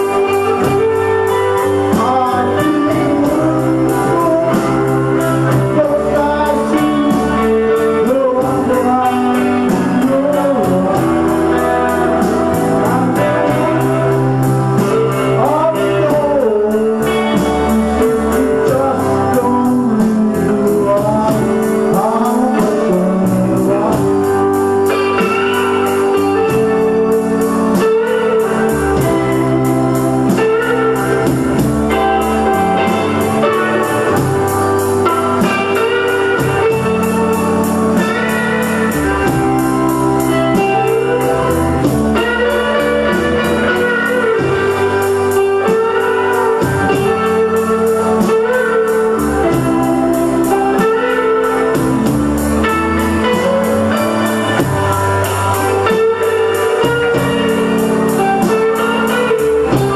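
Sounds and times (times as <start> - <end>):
bass guitar: 0.0 - 59.9
drums: 0.0 - 59.9
electric guitar lead: 0.0 - 59.9
rhythm guitar: 0.0 - 59.9.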